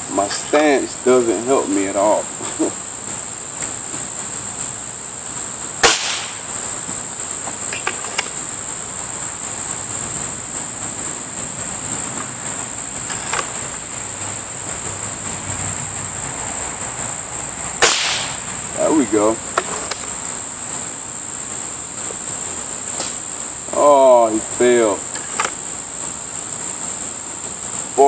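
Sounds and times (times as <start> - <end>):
insects droning: 0.0 - 28.0
air rifle shot: 5.8 - 6.5, 17.8 - 18.5.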